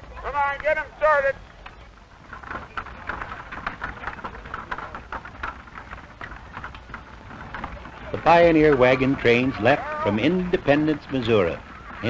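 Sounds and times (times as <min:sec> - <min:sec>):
wagon harness clinking and rattling: 0:02.1 - 0:12.0.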